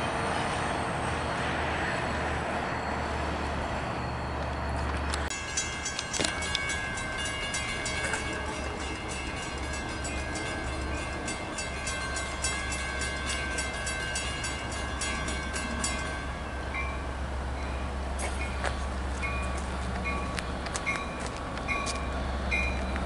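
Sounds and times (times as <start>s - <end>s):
train engine drone: 0.0s - 23.0s
rapid clicking of train wheels: 4.8s - 16.9s, 18.2s - 23.0s.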